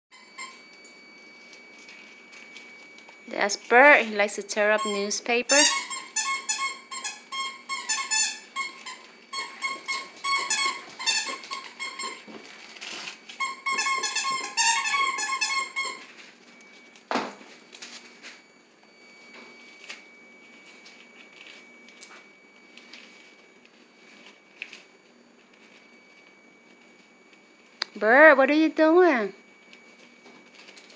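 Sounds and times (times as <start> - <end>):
parrot pulsing squeaks: 4.7 - 12.2, 13.4 - 16.1
paper crinkling: 11.4 - 13.5.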